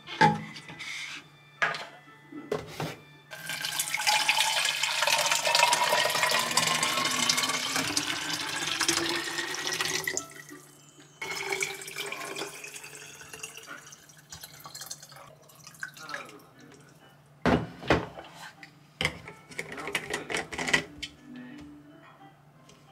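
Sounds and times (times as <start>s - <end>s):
water pouring into plastic bottle: 3.4s - 10.2s, 11.2s - 16.3s.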